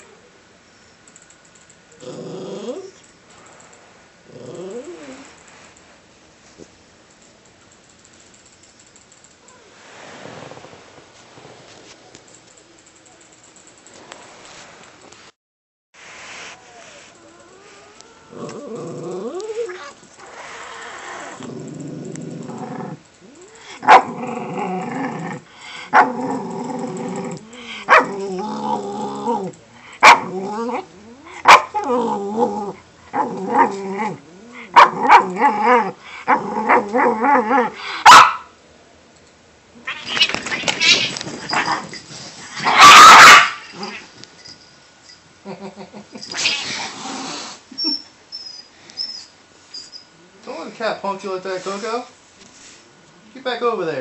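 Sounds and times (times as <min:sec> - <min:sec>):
dog growling: 0:02.0 - 0:03.0, 0:04.3 - 0:05.3, 0:17.2 - 0:37.9
dog barking: 0:23.8 - 0:24.1, 0:27.9 - 0:28.1, 0:30.0 - 0:30.3, 0:31.4 - 0:31.8, 0:34.7 - 0:35.3, 0:38.0 - 0:38.5, 0:42.6 - 0:43.6.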